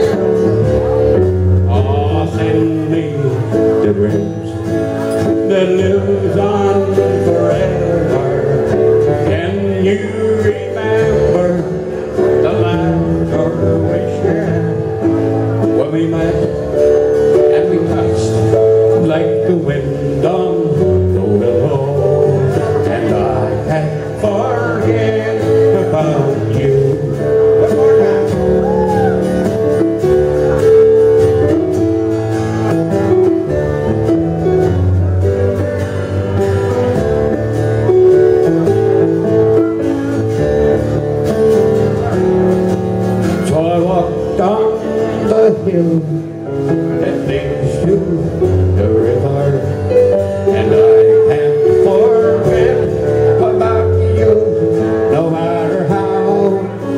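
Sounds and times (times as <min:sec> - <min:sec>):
man singing into microphone: 0:00.0 - 0:29.5, 0:43.2 - 0:56.9
country band playing: 0:00.0 - 0:56.9.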